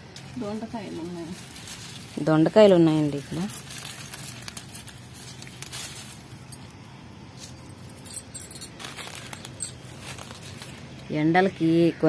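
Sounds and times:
leaves and stems rustling: 0:00.0 - 0:12.0
bangles clinking: 0:03.3 - 0:10.8.

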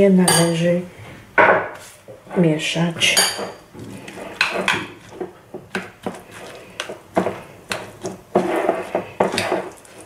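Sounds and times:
soft scraping of wet radish: 0:03.8 - 0:05.3, 0:06.0 - 0:10.0.

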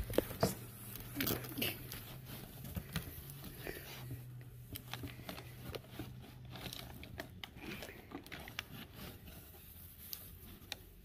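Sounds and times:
cardboard and paper rustling: 0:00.0 - 0:11.0.

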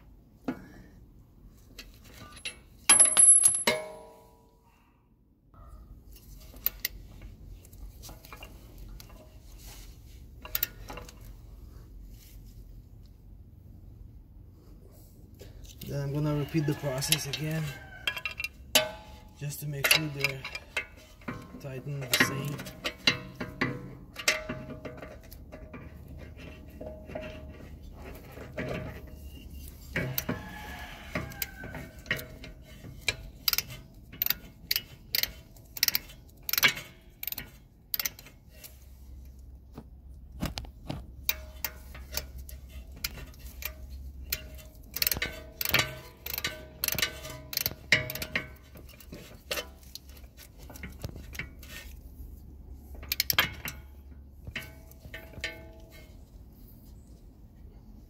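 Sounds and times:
ratchet wrench clicking: 0:33.0 - 0:38.7, 0:41.3 - 0:50.2, 0:53.0 - 0:53.8.

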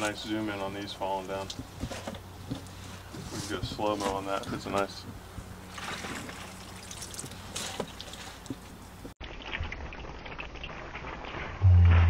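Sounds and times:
water dripping into bucket: 0:05.8 - 0:10.9.

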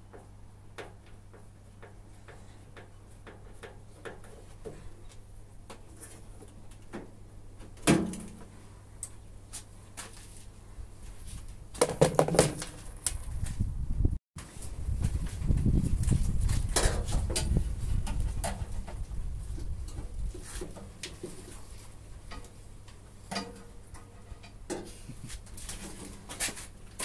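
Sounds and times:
clattering knocks of plastic parts: 0:11.8 - 0:13.2.

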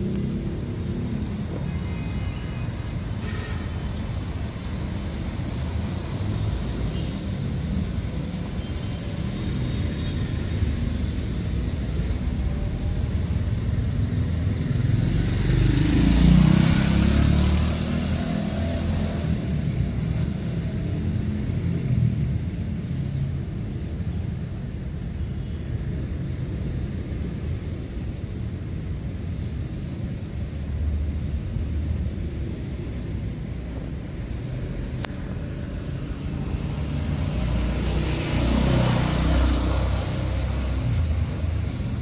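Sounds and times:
road traffic rumbling: 0:00.0 - 0:42.0
vehicle passing: 0:14.2 - 0:22.2, 0:33.4 - 0:42.0.

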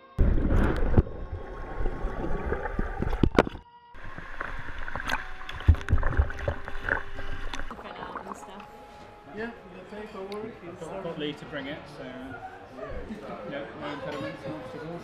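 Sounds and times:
muffled underwater churning: 0:00.2 - 0:08.9.

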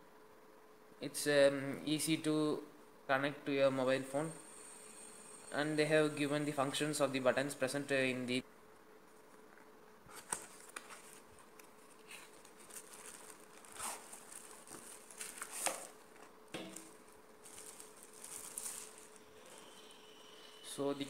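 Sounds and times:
faint steady hum: 0:00.0 - 0:21.0
plastic wrapping crinkling: 0:10.1 - 0:19.8.

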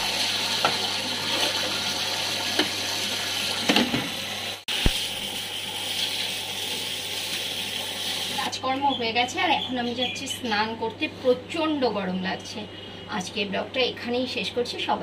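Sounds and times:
tap water running into basin: 0:00.0 - 0:08.6.

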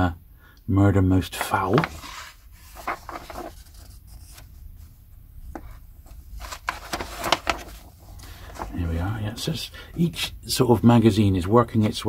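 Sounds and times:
magazine pages rustling: 0:01.4 - 0:10.1.

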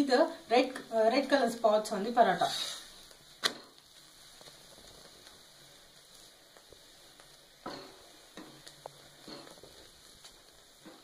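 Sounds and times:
flatbread sizzling on griddle: 0:00.0 - 0:11.0
spatula scraping griddle: 0:07.6 - 0:11.0.

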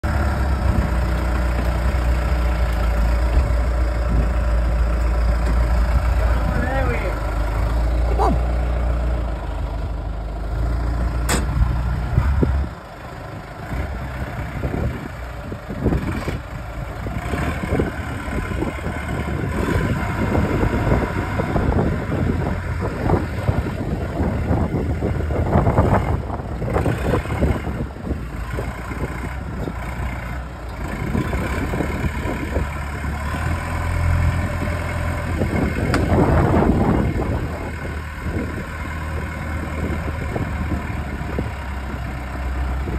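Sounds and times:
diesel engine revving: 0:00.0 - 0:42.9
sharp click: 0:11.3 - 0:11.6.

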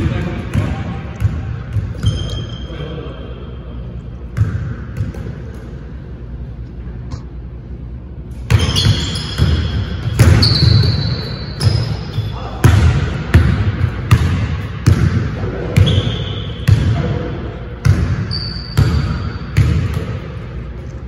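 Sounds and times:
sneakers squeaking on hardwood: 0:08.5 - 0:12.4.

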